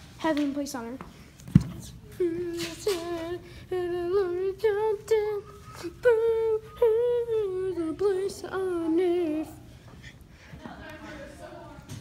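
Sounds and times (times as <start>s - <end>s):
high-pitched voice singing: 2.0s - 9.6s.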